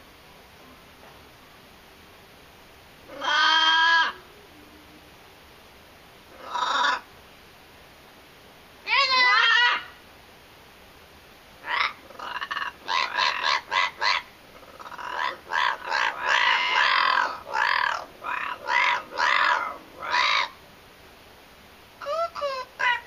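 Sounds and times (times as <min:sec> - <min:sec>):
parrot squawking: 0:03.1 - 0:04.2, 0:06.3 - 0:07.0, 0:08.9 - 0:10.0, 0:11.6 - 0:20.6, 0:22.0 - 0:23.0.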